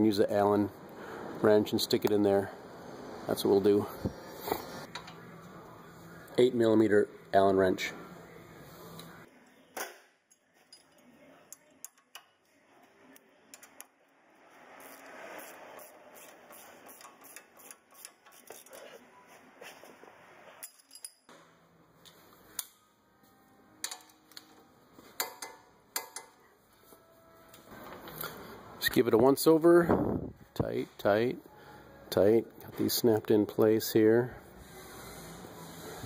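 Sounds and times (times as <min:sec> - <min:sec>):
metal tool clinks: 0:20.6 - 0:21.3.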